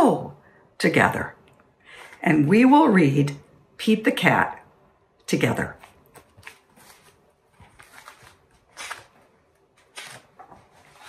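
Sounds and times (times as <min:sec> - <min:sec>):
book pages rustling and tapping: 0:05.8 - 0:11.0.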